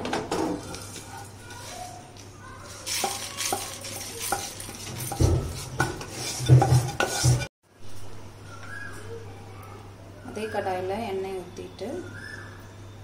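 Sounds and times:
wooden spatula scraping spices: 0.6s - 7.5s
seeds rattling over pan: 0.8s - 7.4s.

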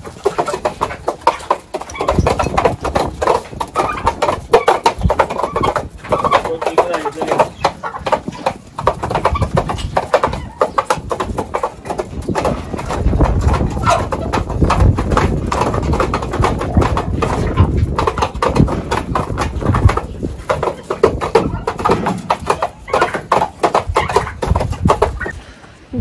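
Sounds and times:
turkeys pecking at trough: 0.0s - 25.8s
wind rumble on microphone: 1.9s - 6.3s, 8.2s - 22.0s, 23.8s - 26.0s.

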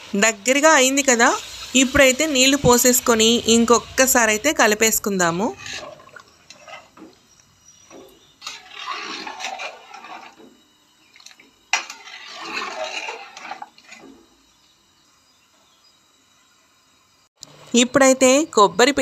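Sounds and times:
liquid sloshing in pot: 1.0s - 14.4s
ladle scraping metal pot: 1.6s - 14.3s.

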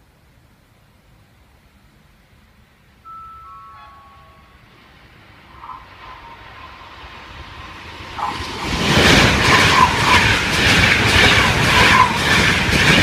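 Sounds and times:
electric train passing at speed: 0.0s - 13.0s
wheels clattering on rails: 5.4s - 13.0s.

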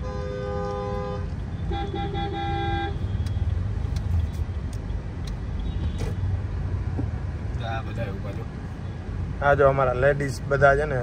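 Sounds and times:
car horn honking: 0.0s - 3.5s
engine and road rumble: 0.0s - 11.0s.

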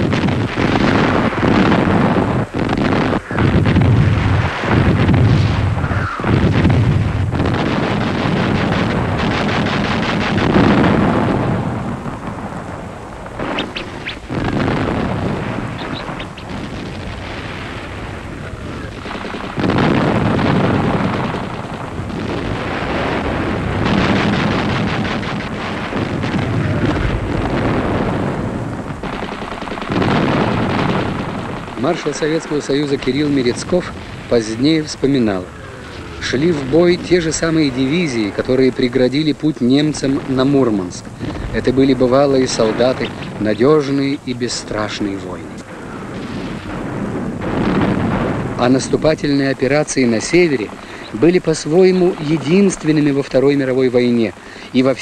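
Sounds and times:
gunfire: 0.0s - 12.4s, 13.2s - 44.0s
artillery explosions: 0.0s - 55.0s.

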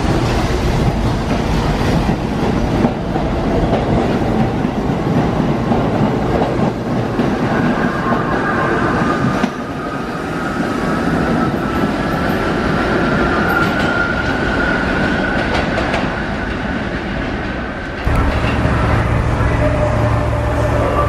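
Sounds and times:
train wheel and rail noise: 0.0s - 21.0s
train motor whine: 18.0s - 21.0s
deep steady hum: 18.1s - 21.0s.

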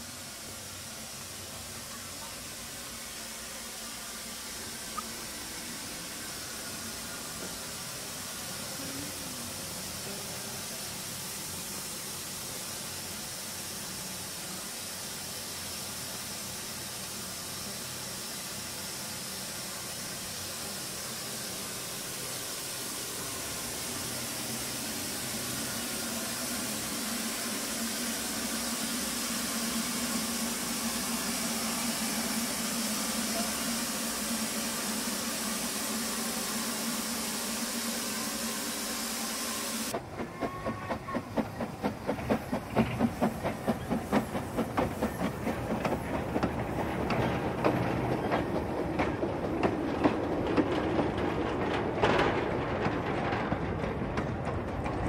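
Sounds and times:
steam locomotive hissing: 0.0s - 55.0s
train wagons clattering over rail joints: 39.9s - 55.0s.

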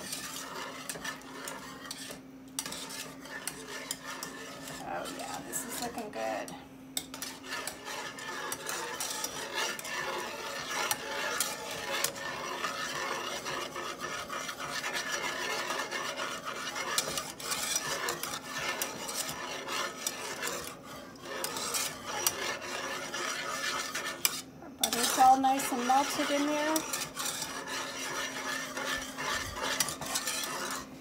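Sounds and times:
whisk scraping metal saucepan: 0.0s - 31.0s.

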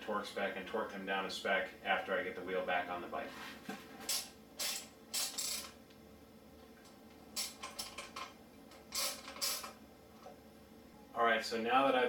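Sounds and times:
hand ratchet clicking: 4.1s - 5.8s, 7.4s - 9.8s.

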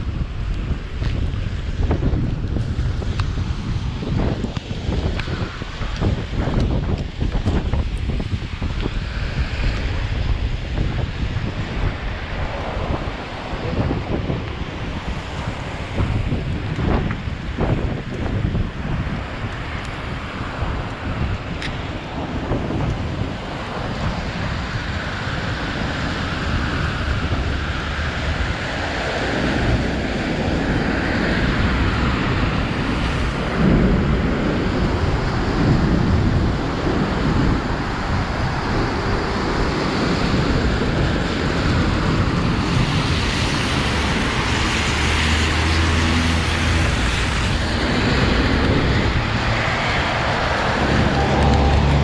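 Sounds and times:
traffic hiss on wet roads: 0.0s - 52.0s
wind buffeting microphone: 0.0s - 52.0s.

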